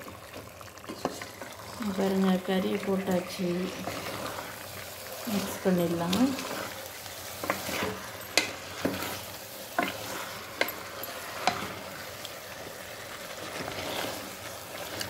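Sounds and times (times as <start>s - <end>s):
oil sizzling: 0.0s - 15.0s
spatula scraping a pot: 3.5s - 15.0s.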